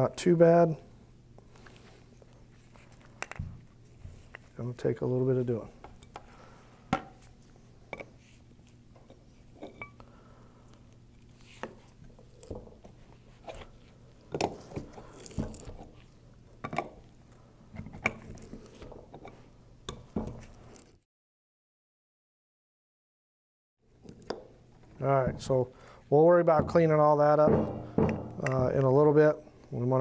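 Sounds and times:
low steady hum: 0:23.8 - 0:30.0.

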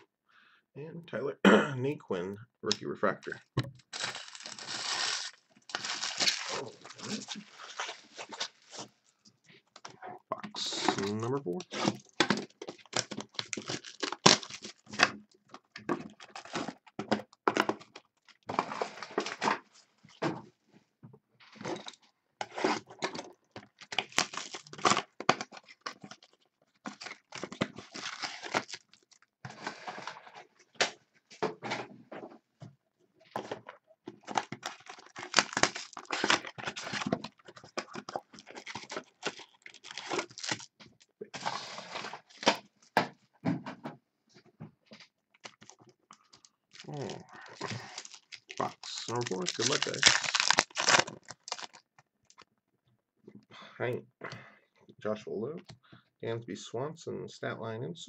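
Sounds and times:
wrapping tearing and crinkling: 0:03.9 - 0:09.3, 0:10.6 - 0:17.0, 0:17.6 - 0:19.6, 0:22.5 - 0:30.4, 0:33.4 - 0:42.8, 0:45.4 - 0:52.5.

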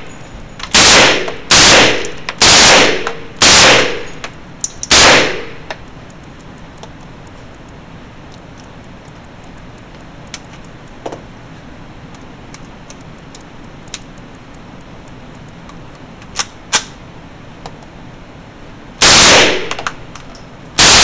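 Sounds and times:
sharp metallic gun clicks: 0:00.6 - 0:07.0, 0:16.2 - 0:17.0
loud snaps: 0:00.7 - 0:05.8.

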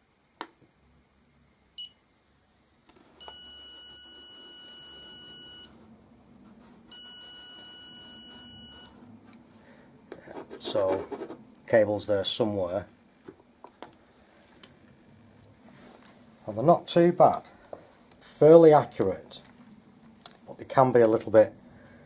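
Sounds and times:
cable detector beeping: 0:03.2 - 0:05.8, 0:06.9 - 0:09.0.

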